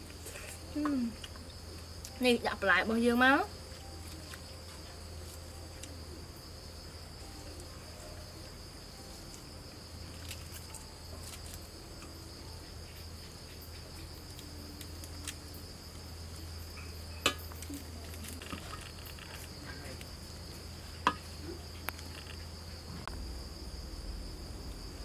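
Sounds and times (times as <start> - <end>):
crickets chirring: 0.0 - 25.0
lettuce leaves rustling: 3.6 - 6.0, 9.0 - 12.0.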